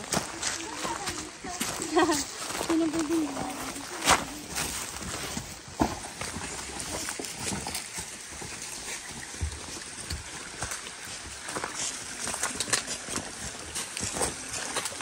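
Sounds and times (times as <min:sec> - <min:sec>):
footsteps on dry leaves and stones: 0:00.0 - 0:15.0.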